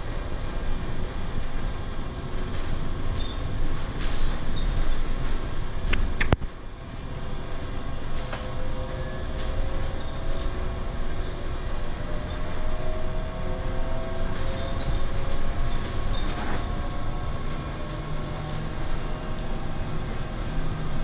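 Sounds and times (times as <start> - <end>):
road and tyre noise: 0.0 - 21.0.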